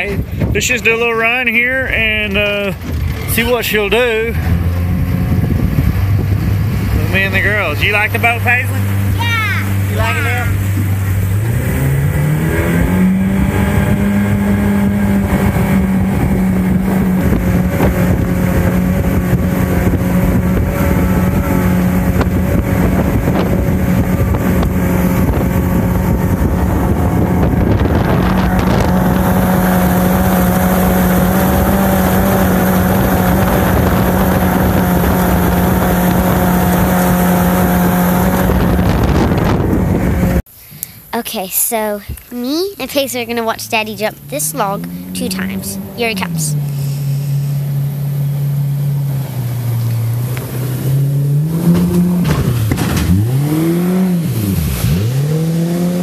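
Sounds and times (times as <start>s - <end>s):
wind rushing over microphone: 0.0s - 9.2s, 9.8s - 40.5s
outboard motor accelerating: 0.0s - 40.5s, 43.3s - 56.0s.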